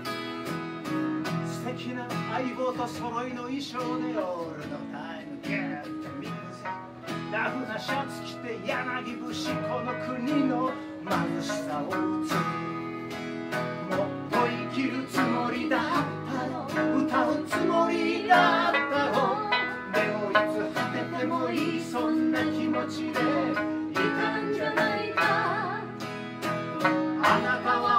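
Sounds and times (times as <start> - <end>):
strummed acoustic guitar: 0.0 - 27.9
man singing: 1.5 - 12.4, 13.8 - 25.4, 27.2 - 27.9
sanshin plucking: 16.7 - 21.8.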